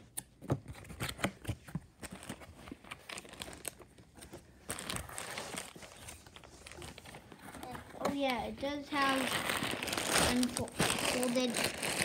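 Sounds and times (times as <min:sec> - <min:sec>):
plastic bag crinkling: 0:09.0 - 0:12.0.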